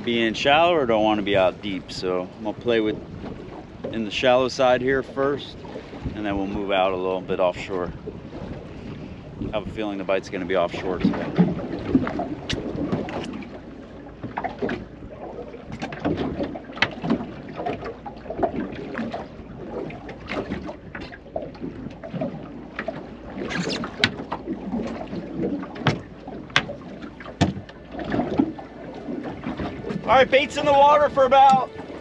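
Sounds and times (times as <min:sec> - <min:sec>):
water slapping against boat hull: 0:00.0 - 0:32.0
sharp knocks and clicks: 0:25.8 - 0:26.8, 0:27.4 - 0:27.8.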